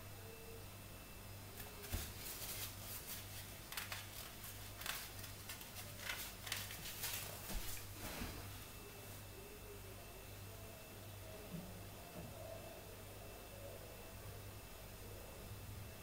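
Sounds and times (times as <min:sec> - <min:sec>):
onion frying in oil: 0:01.8 - 0:08.0.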